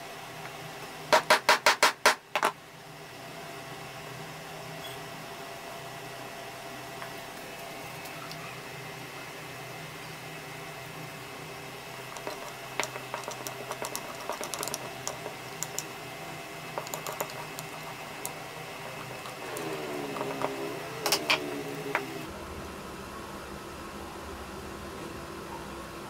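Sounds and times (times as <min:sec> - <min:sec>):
wavering pitched sound: 0:18.0 - 0:22.3.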